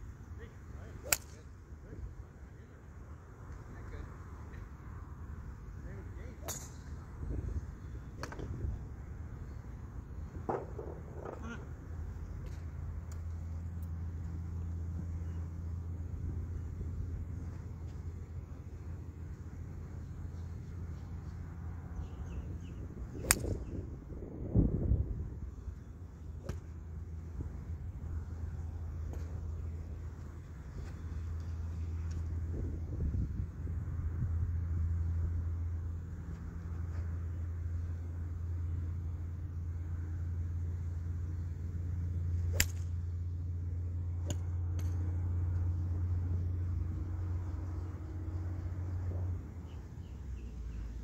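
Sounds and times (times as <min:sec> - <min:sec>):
steady low hum: 0:00.0 - 0:51.0
golf club striking ball: 0:01.0 - 0:01.4, 0:23.2 - 0:23.7, 0:42.4 - 0:43.0, 0:44.2 - 0:45.1.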